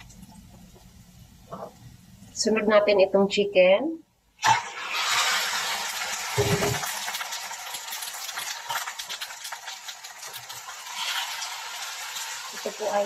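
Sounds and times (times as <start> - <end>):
chicken sizzling in hot oil: 4.4 - 13.0.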